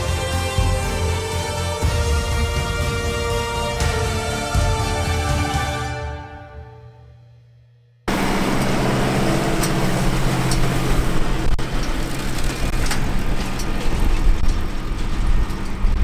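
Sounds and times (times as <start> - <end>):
baler machinery clattering: 8.1 - 16.0
tractor engine running under load: 8.1 - 16.0.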